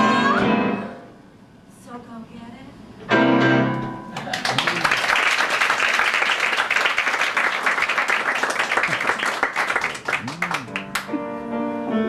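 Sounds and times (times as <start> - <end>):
audience applause: 4.2 - 11.2.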